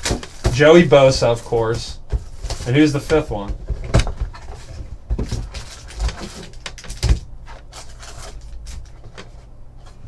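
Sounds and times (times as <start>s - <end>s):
foil packs rustling: 0.0s - 3.5s, 4.3s - 9.4s.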